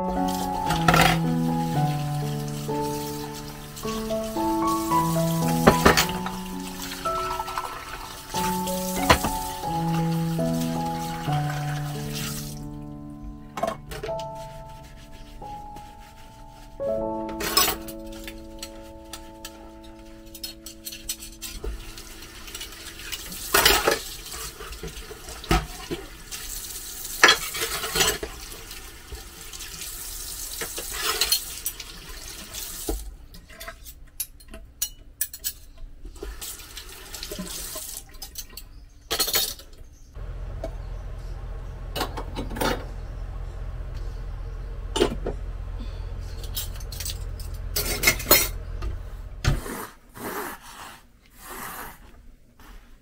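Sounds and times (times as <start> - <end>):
tap water running into sink: 0.2 - 12.6, 21.6 - 33.0, 36.4 - 38.0
dishes clinking: 40.3 - 49.4.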